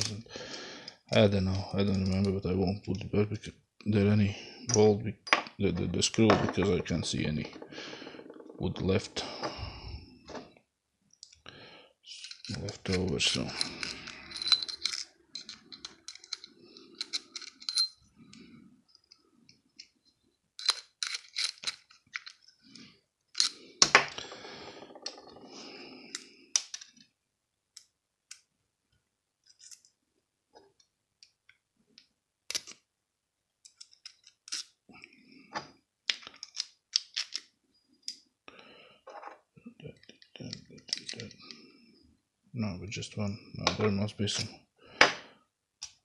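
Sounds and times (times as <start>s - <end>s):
small metallic clicks and clinks: 12.1s - 19.2s, 29.4s - 30.0s, 33.6s - 34.7s.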